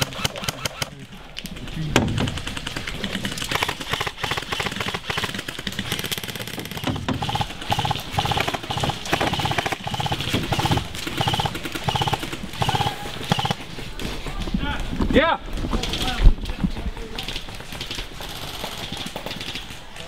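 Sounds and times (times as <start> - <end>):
airsoft guns firing bursts: 0.0 - 1.0, 2.1 - 13.8, 17.3 - 19.8.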